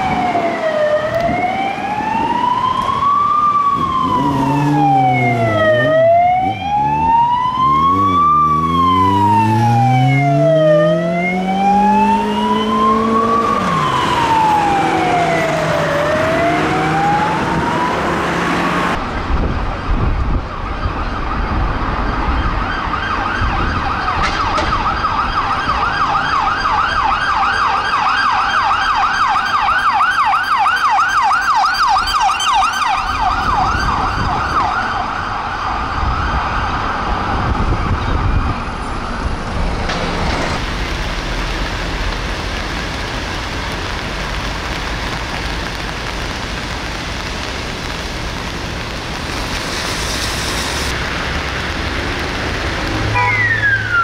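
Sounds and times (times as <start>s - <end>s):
police siren slow wail: 0.0s - 19.0s, 20.8s - 39.4s, 52.8s - 54.0s
siren fast yelp: 24.8s - 35.2s, 53.2s - 54.0s.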